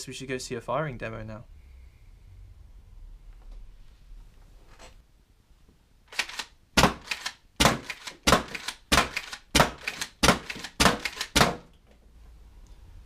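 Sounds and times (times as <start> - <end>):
toy blaster firing darts: 6.1 - 11.6.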